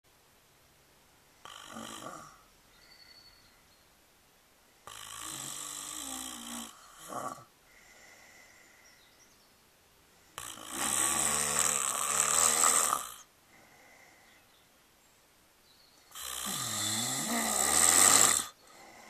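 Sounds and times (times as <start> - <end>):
person snoring: 1.4 - 2.4, 4.9 - 8.6, 10.4 - 14.3, 16.1 - 19.0.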